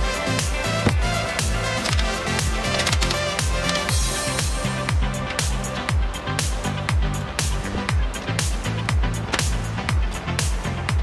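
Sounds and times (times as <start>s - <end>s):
bass line: 0.0s - 11.0s
electronic dance music: 0.0s - 11.0s
kick drum: 0.8s - 1.2s.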